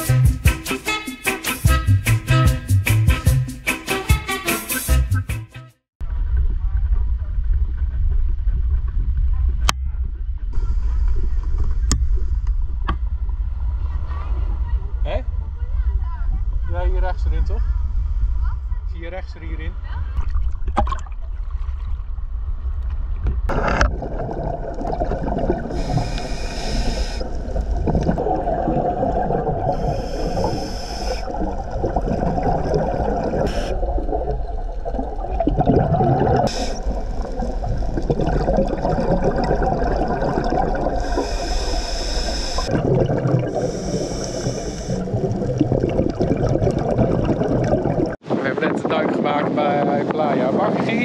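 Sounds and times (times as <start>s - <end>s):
muffled underwater water rush: 6.0s - 16.7s, 19.7s - 50.1s
regulator bubbles hissing: 23.5s - 48.2s.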